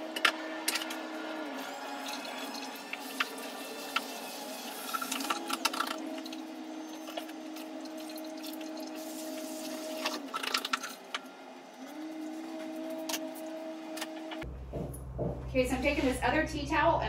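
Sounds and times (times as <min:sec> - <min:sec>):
faucet running water: 0:00.0 - 0:11.2.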